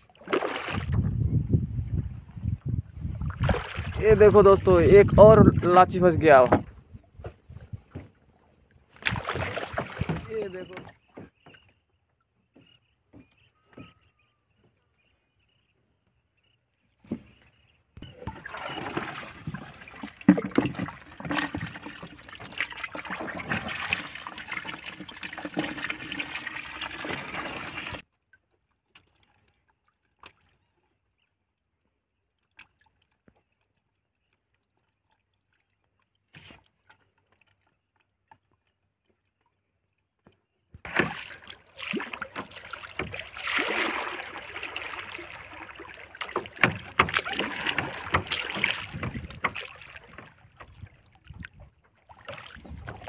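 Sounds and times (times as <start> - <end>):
water sloshing around boat: 0.0 - 1.1, 2.3 - 53.0
knocks on boat: 6.4 - 8.1, 46.4 - 50.9.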